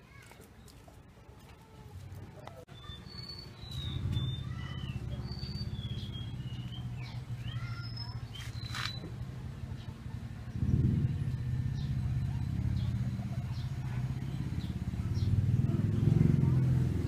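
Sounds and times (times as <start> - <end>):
small birds chirping: 0.1 - 17.0
low engine hum: 3.7 - 17.0.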